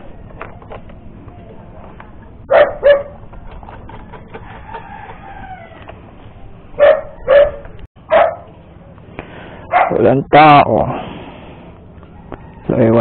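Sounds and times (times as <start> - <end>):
dog barking: 2.5 - 3.2, 6.8 - 8.5, 9.6 - 10.0
distant rooster crowing: 4.3 - 6.0, 12.0 - 13.0.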